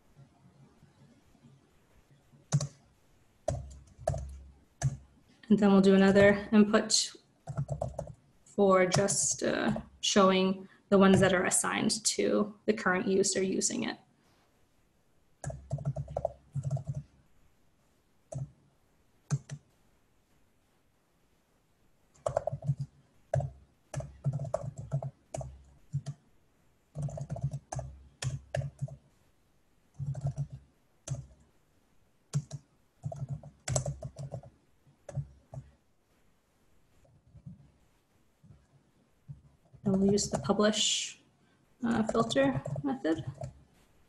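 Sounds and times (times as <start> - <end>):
typing on computer keyboard: 2.5 - 2.8, 3.4 - 5.0, 7.4 - 8.2, 15.4 - 17.1, 18.3 - 18.6, 19.3 - 19.6, 22.1 - 26.2, 26.9 - 29.0, 29.9 - 31.4, 32.3 - 35.7, 41.9 - 43.6.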